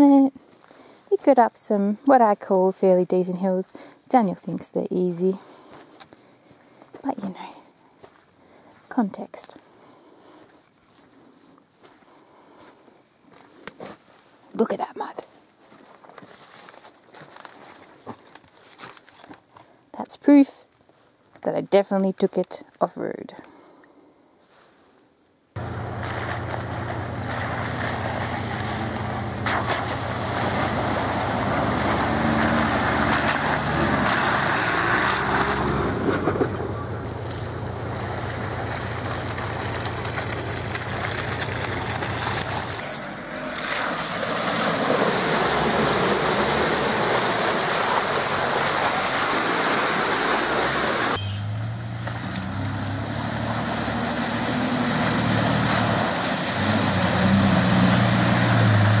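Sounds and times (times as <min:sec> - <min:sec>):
vehicle engines running: 0:25.6 - 0:59.0.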